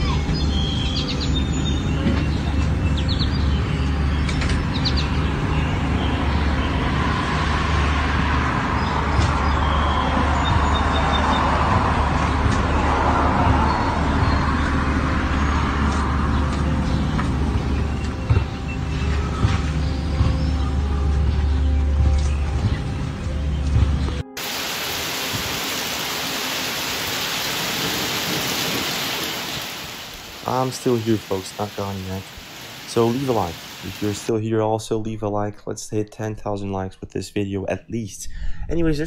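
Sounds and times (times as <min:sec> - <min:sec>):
bird chirps: 0:00.0 - 0:06.9
engine hum: 0:00.0 - 0:34.3
vehicle passing: 0:05.0 - 0:18.9.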